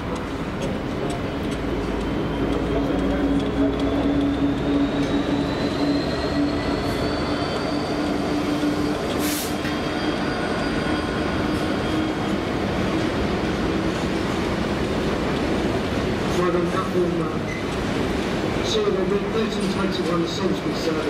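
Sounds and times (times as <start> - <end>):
diesel locomotive engine running: 0.0 - 21.0
faint high wheel squeal: 3.9 - 12.4
brief hiss: 9.2 - 9.7.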